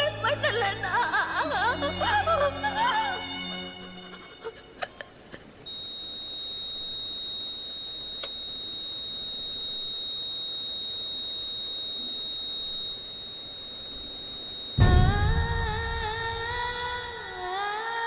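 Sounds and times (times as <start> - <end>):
continuous high-pitched monitor beep: 5.7 - 17.4
clicks: 7.7 - 8.4.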